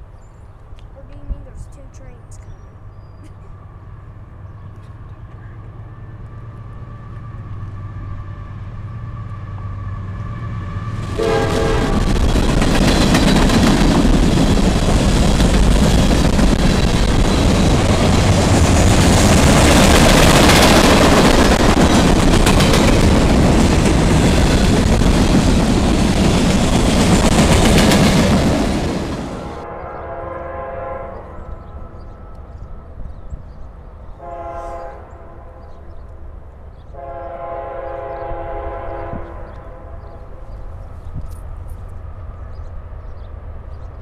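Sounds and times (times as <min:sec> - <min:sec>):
freight cars rumbling on rails: 0:00.9 - 0:44.0
locomotive passing with loud rush: 0:05.5 - 0:32.1
train horn: 0:11.1 - 0:12.3, 0:29.4 - 0:32.7, 0:34.2 - 0:35.8, 0:36.9 - 0:40.4.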